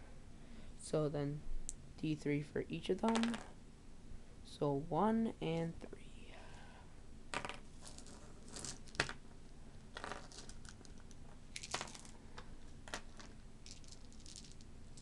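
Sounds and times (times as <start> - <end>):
plastic dice clicking: 3.1 - 3.5.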